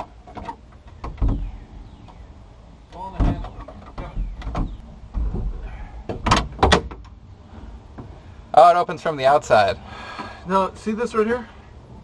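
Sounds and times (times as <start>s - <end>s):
door latch rattling and clunking: 0.0s - 2.2s, 2.9s - 7.1s.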